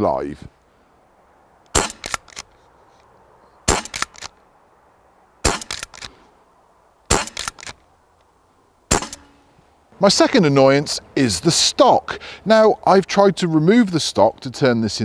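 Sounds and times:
air rifle shots: 1.7 - 2.5, 3.6 - 4.3, 5.4 - 6.2, 7.1 - 7.8, 8.9 - 9.4.

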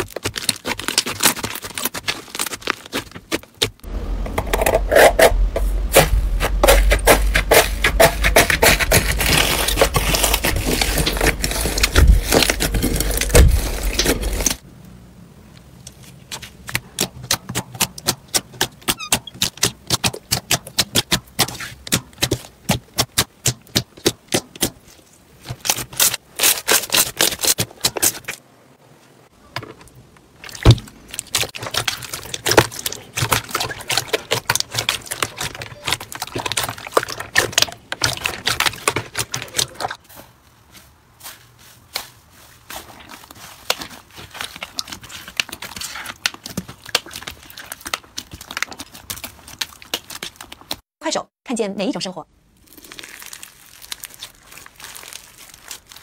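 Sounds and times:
hands kneading slime: 0.0 - 3.8, 15.6 - 28.3, 30.4 - 50.8, 52.6 - 56.0
low rumble: 3.8 - 14.6.

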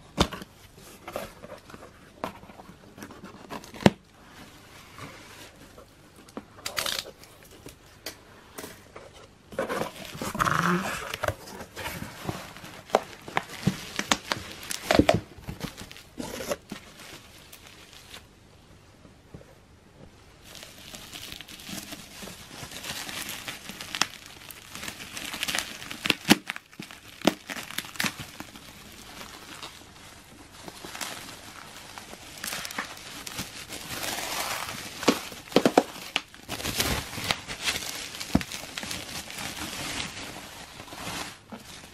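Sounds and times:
bubble wrap crinkling: 0.0 - 8.0, 9.5 - 18.4, 20.4 - 41.9
packing tape tearing: 6.6 - 7.7, 20.5 - 29.8, 30.6 - 40.2.

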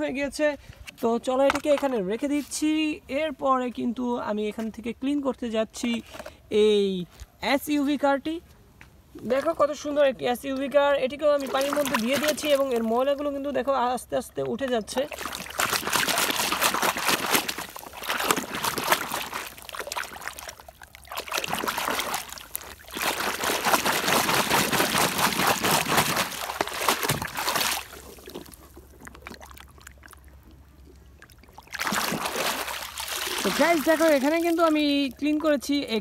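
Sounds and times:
water splashing and sloshing: 10.5 - 36.0.

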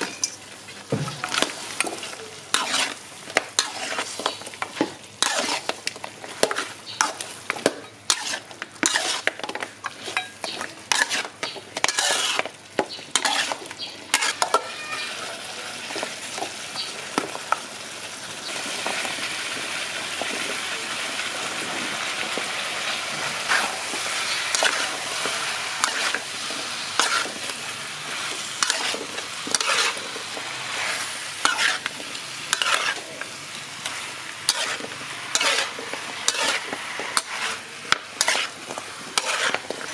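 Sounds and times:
food sizzling in a wok: 0.0 - 39.9
metal spatula scraping a wok: 1.1 - 16.4, 22.8 - 39.9.

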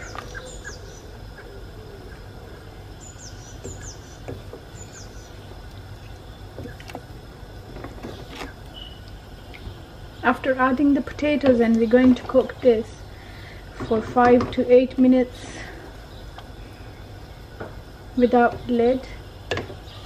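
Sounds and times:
bird chirping: 0.0 - 7.0, 8.0 - 10.9, 16.0 - 20.0
steady low hum: 0.0 - 20.0.

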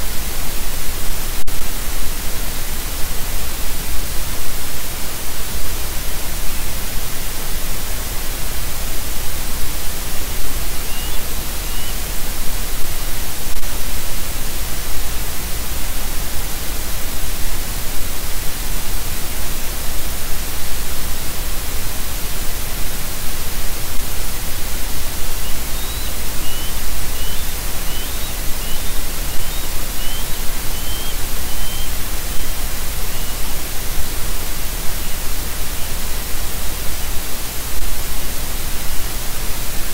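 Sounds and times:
loud static hiss: 0.0 - 39.9
faint short chirps: 10.8 - 12.0, 25.4 - 31.9.

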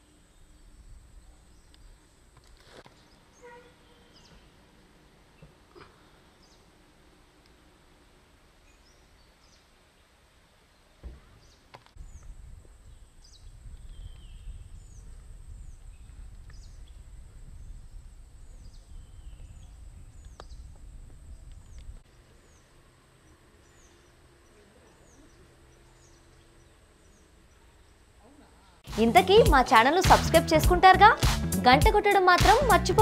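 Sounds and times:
bird chirping: 2.9 - 4.6, 21.3 - 30.0.

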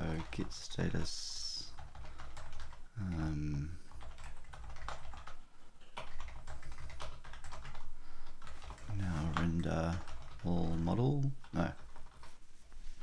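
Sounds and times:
typing on a keyboard: 0.0 - 12.3.

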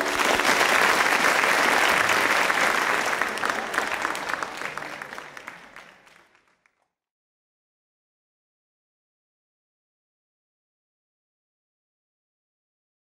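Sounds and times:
audience applause: 0.0 - 6.9.

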